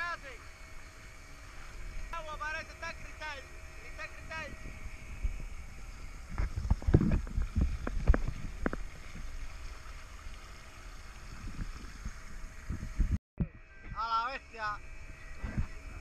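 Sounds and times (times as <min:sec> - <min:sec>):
wind rumble on microphone: 0:03.3 - 0:14.1, 0:14.8 - 0:16.0.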